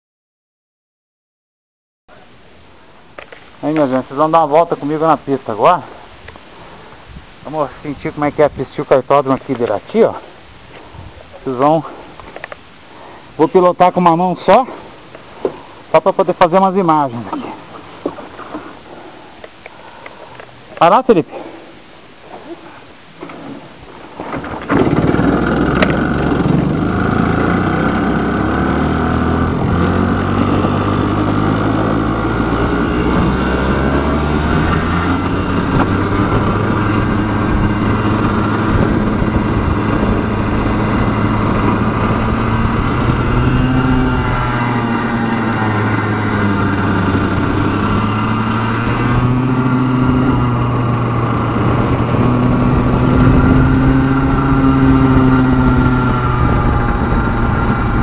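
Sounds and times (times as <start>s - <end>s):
kart engine running hard: 24.4s - 58.0s.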